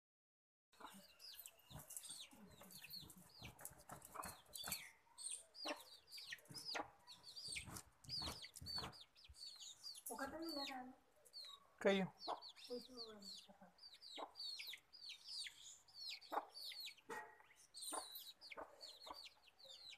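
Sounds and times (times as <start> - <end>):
chicks peeping: 0.8 - 19.9
hen clucking: 12.2 - 14.8, 16.1 - 17.2, 17.8 - 19.4.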